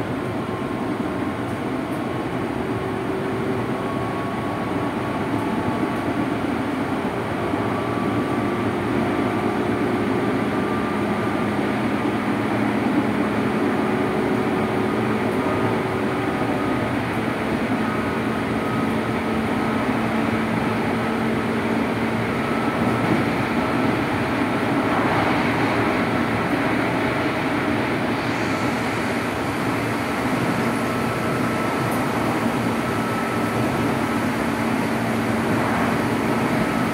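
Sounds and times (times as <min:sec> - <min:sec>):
train wheels rumbling on rails: 0:00.0 - 0:36.9.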